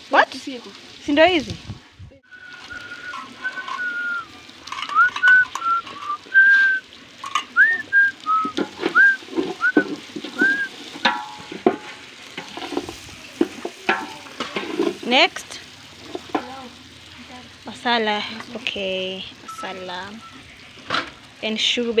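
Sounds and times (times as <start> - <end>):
meat and onions sizzling: 0.0 - 22.0
woman whistling a tune: 2.3 - 4.3, 4.9 - 6.8, 7.6 - 9.8, 10.4 - 10.7.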